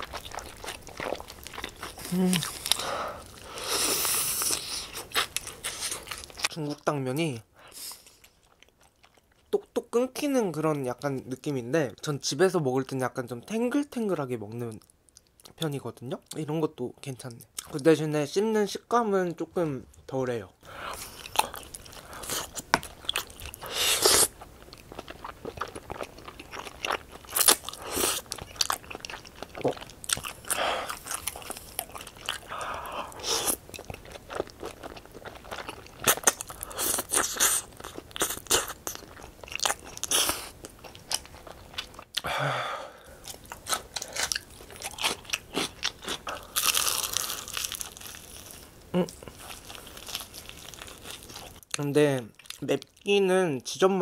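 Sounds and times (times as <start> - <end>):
person chewing food: 0.0 - 6.5, 7.9 - 9.6, 20.9 - 51.8
crunchy bites: 43.2 - 51.7.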